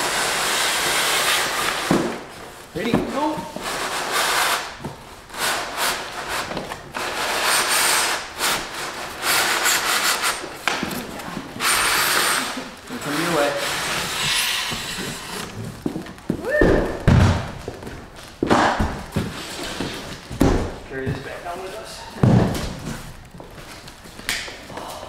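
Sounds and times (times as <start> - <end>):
cardboard scraping against polystyrene: 0.0 - 16.2, 19.1 - 20.3.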